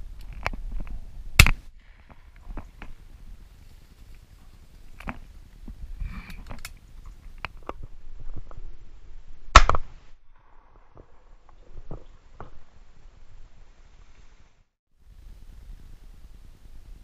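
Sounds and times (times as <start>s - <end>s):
shotgun shot: 9.5s - 11.0s.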